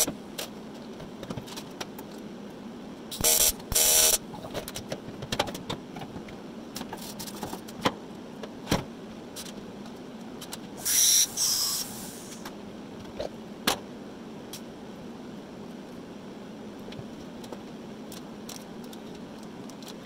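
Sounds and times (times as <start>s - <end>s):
steady low hum: 0.0s - 20.0s
short bursts of hiss: 10.8s - 12.4s.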